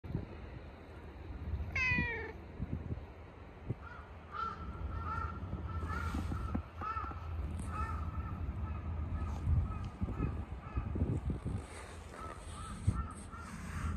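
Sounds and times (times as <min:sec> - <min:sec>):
cat meowing: 0:01.7 - 0:02.4
crows cawing: 0:03.8 - 0:11.0, 0:12.1 - 0:13.9.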